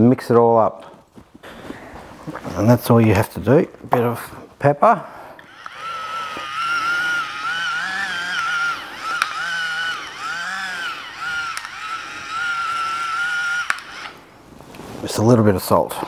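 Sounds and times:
electric pepper mill grinding: 0:05.4 - 0:14.3
sharp click: 0:13.6 - 0:14.2.

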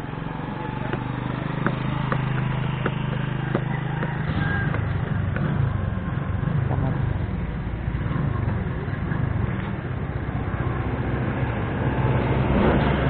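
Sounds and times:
engine running low hum: 0:00.0 - 0:13.0.

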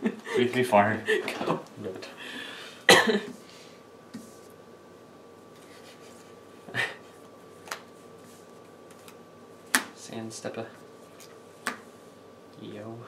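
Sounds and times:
playing cards sliding and tapping: 0:07.6 - 0:09.9.

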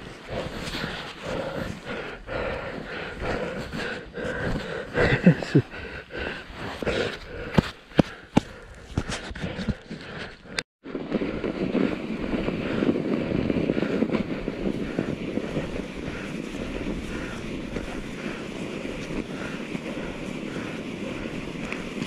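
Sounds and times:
tyre noise on snow: 0:00.0 - 0:10.3, 0:10.9 - 0:22.0
wind on microphone: 0:10.8 - 0:22.0.

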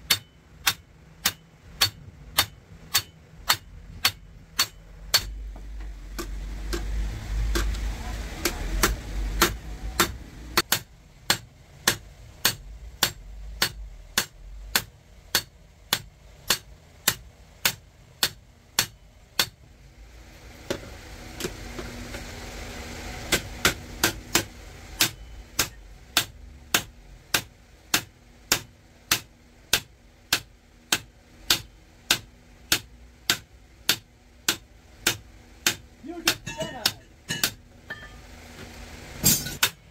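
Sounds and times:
hammer striking metal: 0:00.0 - 0:06.9, 0:07.5 - 0:07.8, 0:08.4 - 0:19.6, 0:23.3 - 0:38.2, 0:39.2 - 0:39.9.

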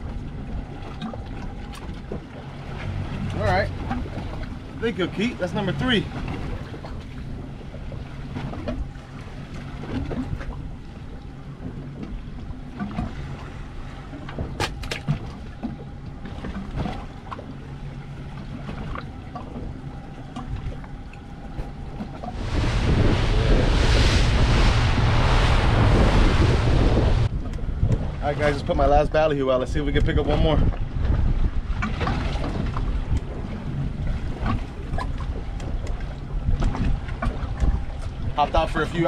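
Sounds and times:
rushing water: 0:00.0 - 0:11.5, 0:12.6 - 0:30.8
outboard engine idling: 0:00.0 - 0:23.6, 0:26.8 - 0:39.0
boat engine rumble at speed: 0:00.0 - 0:39.0
wind on microphone: 0:21.5 - 0:39.0.

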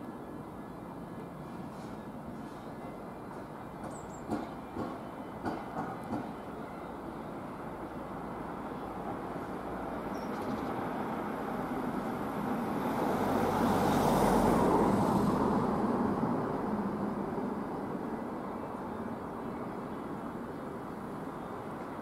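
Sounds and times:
diesel locomotive engine rumble: 0:00.0 - 0:13.6, 0:14.3 - 0:22.0.

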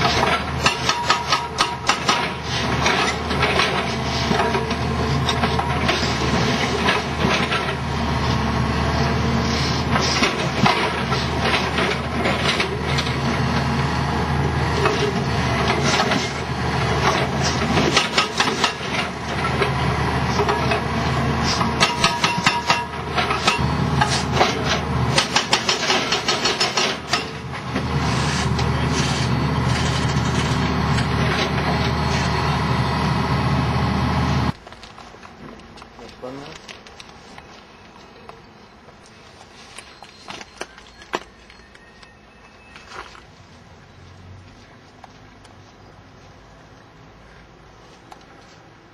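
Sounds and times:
excavator diesel engine: 0:00.0 - 0:48.9
concrete cracking and crunching: 0:34.5 - 0:37.6.

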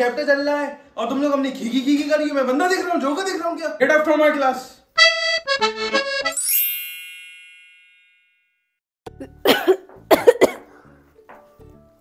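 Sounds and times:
person coughing: 0:09.2 - 0:10.8.

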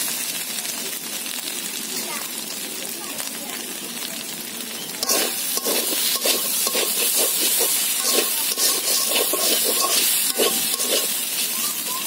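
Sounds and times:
oil sizzling: 0:00.0 - 0:12.0
metal spatula scraping wok: 0:05.0 - 0:11.9.

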